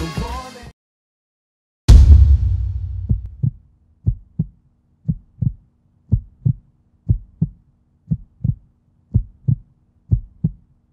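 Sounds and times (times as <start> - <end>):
heartbeat thumps: 1.9 - 10.7
faint steady hum: 3.4 - 10.9.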